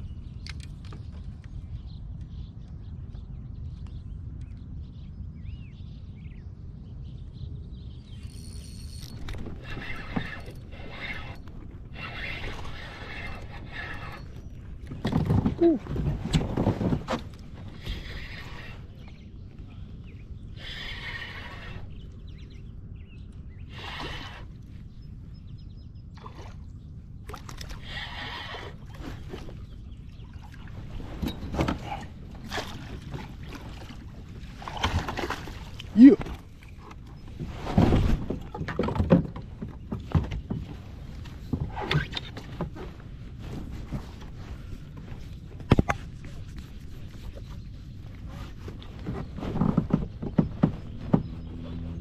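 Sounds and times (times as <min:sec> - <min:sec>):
wind rumble on microphone: 0:00.0 - 0:52.0.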